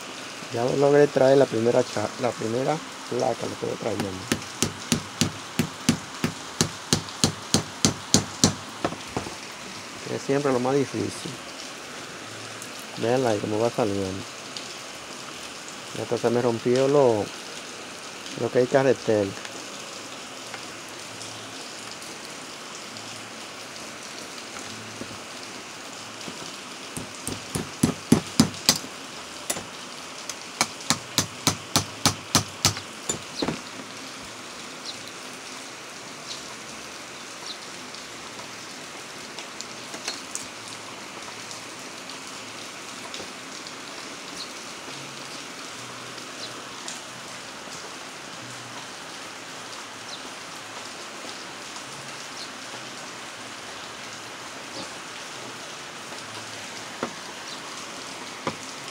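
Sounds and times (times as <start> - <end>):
steady hiss: 0.0 - 36.5.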